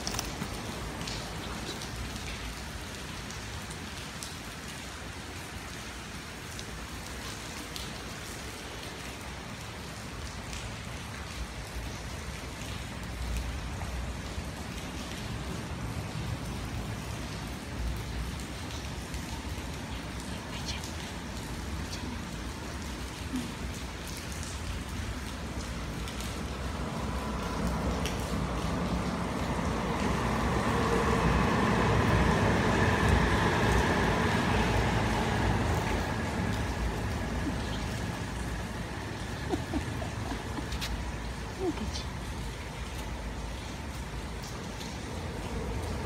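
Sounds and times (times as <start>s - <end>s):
steady rain falling: 0.0s - 46.0s.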